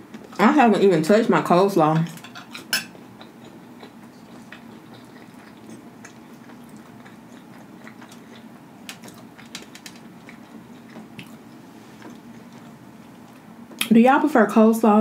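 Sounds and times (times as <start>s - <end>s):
chewing: 2.4s - 13.9s.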